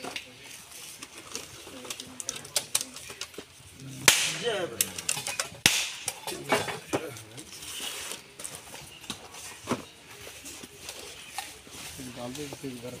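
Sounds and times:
coconut cracking: 0:03.8 - 0:06.3.

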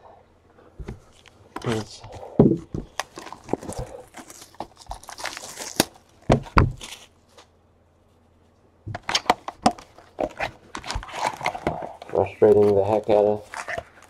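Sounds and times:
crinkling: 0:00.8 - 0:14.0
box thumps: 0:02.4 - 0:03.7, 0:06.3 - 0:06.9.

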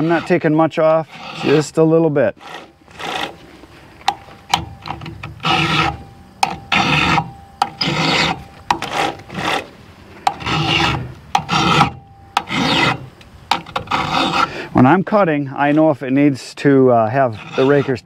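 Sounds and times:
file rasping on chainsaw chain: 0:00.0 - 0:03.5, 0:04.8 - 0:14.6, 0:17.1 - 0:18.0.

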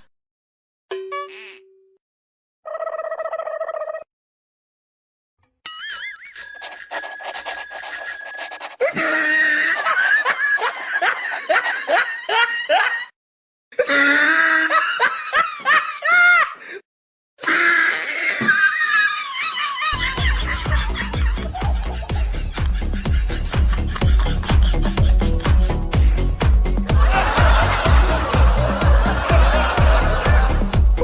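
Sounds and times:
loud laughter bursts: 0:06.6 - 0:13.1, 0:18.6 - 0:26.2, 0:26.8 - 0:30.8.

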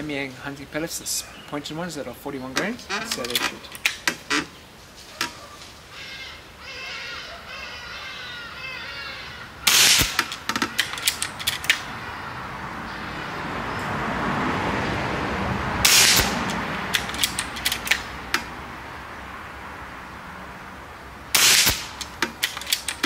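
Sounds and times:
metallic clicks of rifle action: 0:02.9 - 0:04.4, 0:09.7 - 0:11.9, 0:15.9 - 0:18.5, 0:21.4 - 0:23.0
air rifle shots: 0:09.6 - 0:11.9, 0:15.8 - 0:18.5, 0:21.3 - 0:23.0.

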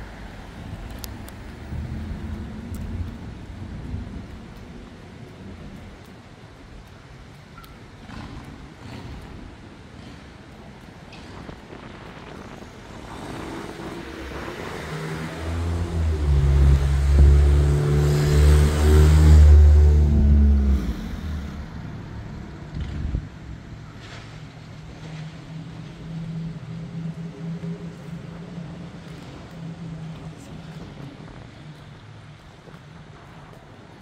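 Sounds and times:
vehicle engine passing by: 0:13.0 - 0:31.6.

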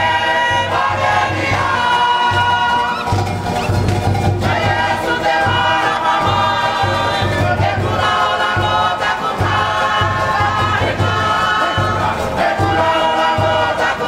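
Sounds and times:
choir singing in harmony: 0:00.0 - 0:14.0
string band accompaniment: 0:00.0 - 0:14.0.

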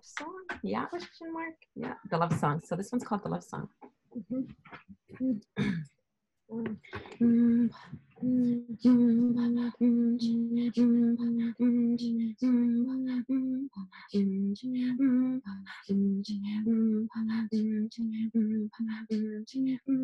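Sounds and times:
throat singing hummed tones: 0:04.2 - 0:05.8, 0:06.5 - 0:20.0.

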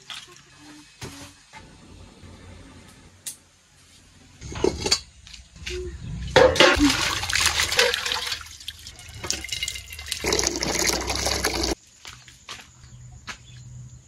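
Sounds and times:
water pouring into metal pot: 0:06.8 - 0:11.8.

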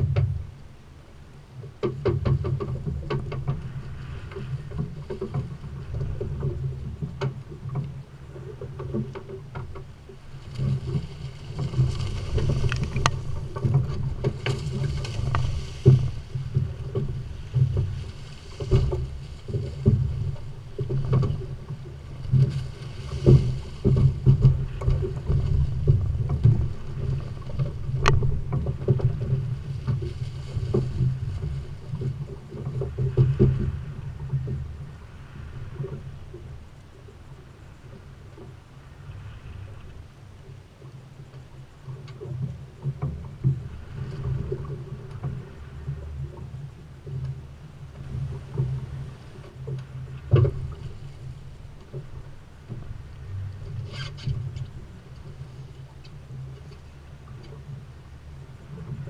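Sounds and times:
sharp knocks on boat: 0:00.0 - 0:00.5, 0:01.6 - 0:34.9, 0:47.0 - 0:56.8
water rushing along hull: 0:00.0 - 0:59.0.

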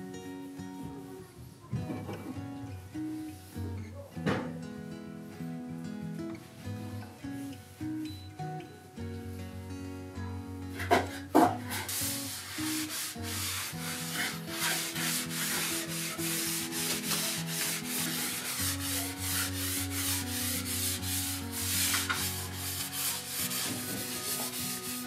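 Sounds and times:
soft guitar music: 0:00.0 - 0:25.0
cloth wiping wood: 0:10.7 - 0:25.0.

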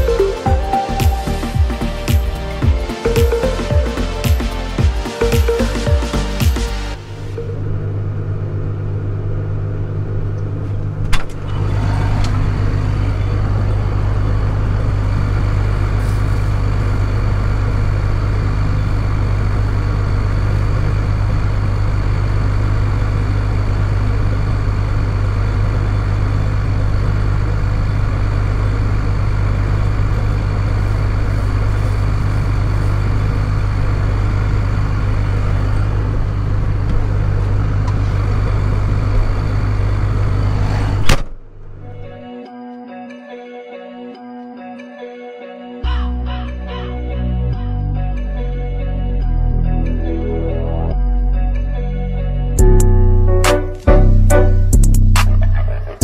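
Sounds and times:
tractor engine idling: 0:12.4 - 0:40.6.

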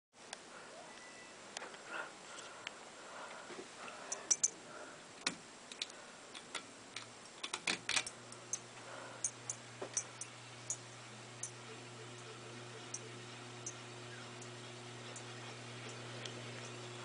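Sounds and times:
ceiling fan ticks and clicks: 0:01.5 - 0:17.0
low motor hum: 0:08.1 - 0:17.0.

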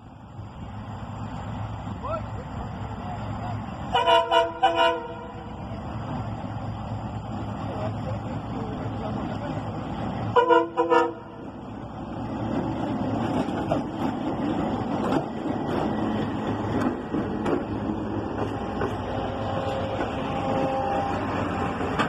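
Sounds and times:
locomotive engine running: 0:00.0 - 0:22.0
locomotive horn blasts: 0:03.9 - 0:05.5, 0:10.3 - 0:11.4
wheels clicking over rail joints: 0:12.4 - 0:22.0.

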